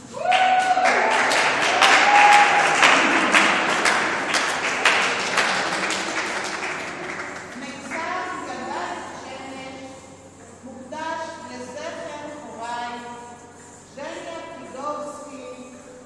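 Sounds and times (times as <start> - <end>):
audience applauding: 0.2 - 8.7.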